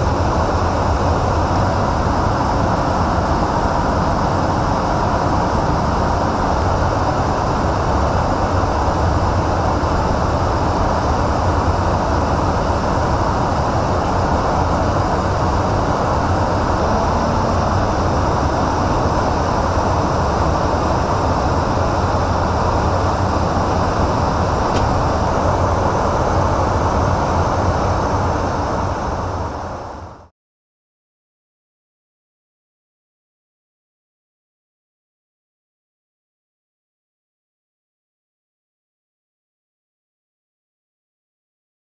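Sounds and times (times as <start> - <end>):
rushing airflow: 0.0 - 30.2
aircraft engines droning: 0.0 - 30.3.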